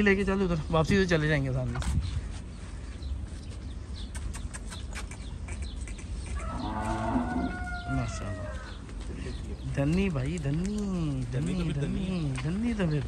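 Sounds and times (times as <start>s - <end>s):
cow mooing: 6.4s - 8.1s.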